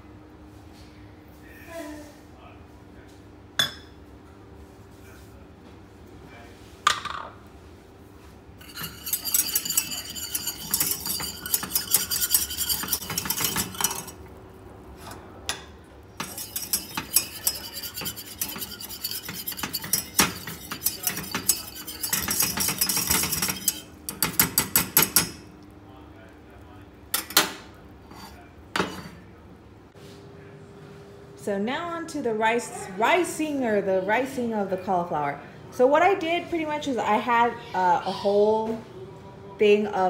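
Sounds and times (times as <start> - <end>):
whisk clinking in steel saucepan: 8.6 - 14.3, 16.2 - 25.3.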